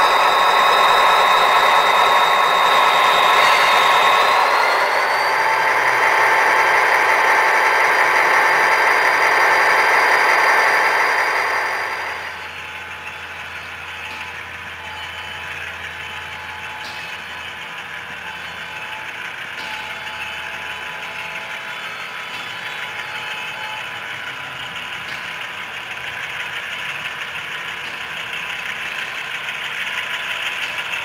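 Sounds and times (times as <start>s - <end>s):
thin high whine: 0.0s - 17.4s
model train motors humming: 0.0s - 31.0s.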